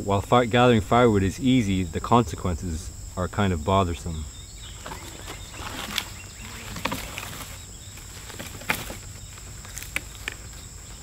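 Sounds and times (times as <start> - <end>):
insects chirring: 0.0 - 11.0
crackles and rustles: 3.9 - 11.0.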